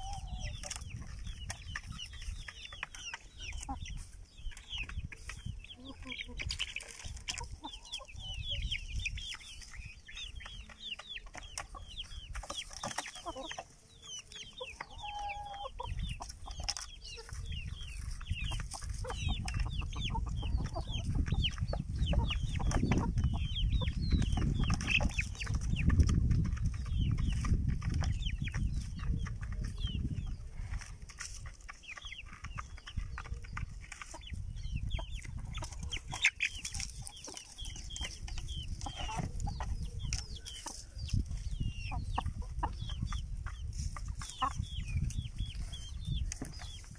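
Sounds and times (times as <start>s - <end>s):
chicks peeping: 0.0s - 46.9s
hens clucking: 0.0s - 46.9s.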